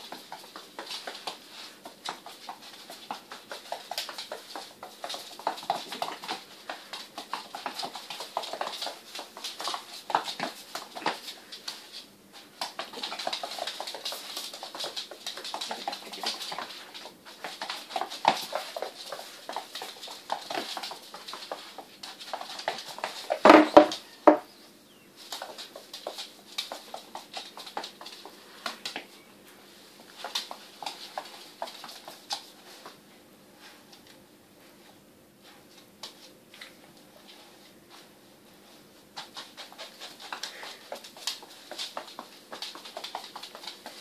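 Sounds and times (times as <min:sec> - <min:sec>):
animal claws scrabbling on floor: 0:00.0 - 0:24.4, 0:25.2 - 0:29.2, 0:38.6 - 0:44.0
broom brushing and knocking on floor: 0:23.0 - 0:24.4.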